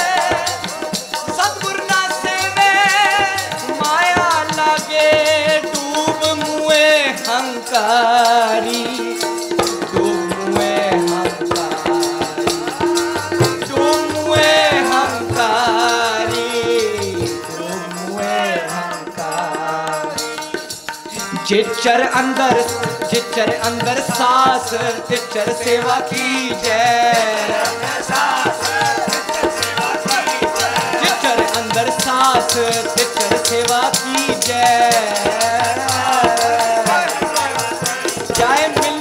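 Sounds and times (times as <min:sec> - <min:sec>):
harmonium: 0:00.0 - 0:39.0
rattling percussion beat: 0:00.0 - 0:39.0
tabla: 0:00.0 - 0:39.0.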